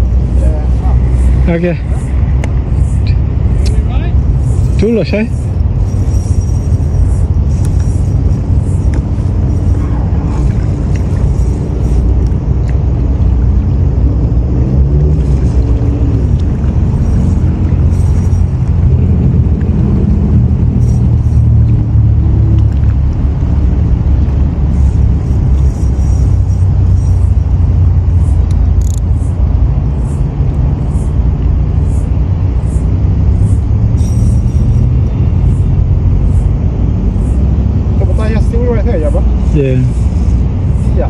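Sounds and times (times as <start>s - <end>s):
wind buffeting microphone: 0.0s - 41.0s.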